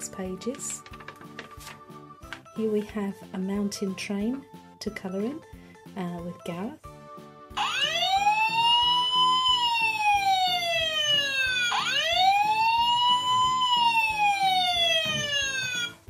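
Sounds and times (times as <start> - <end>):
toy fire engine siren wailing: 7.6 - 16.0.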